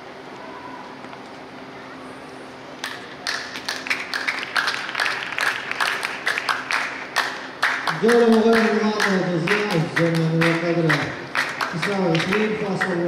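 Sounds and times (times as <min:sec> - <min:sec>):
small crowd applauding: 0:02.8 - 0:13.0.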